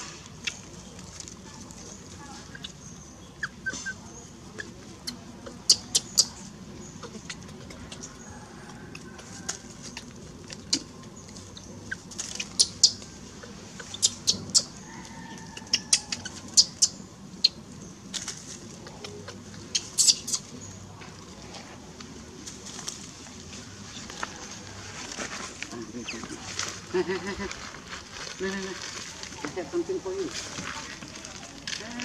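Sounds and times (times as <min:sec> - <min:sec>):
dry leaves crackling: 0:00.0 - 0:03.5, 0:04.3 - 0:32.0.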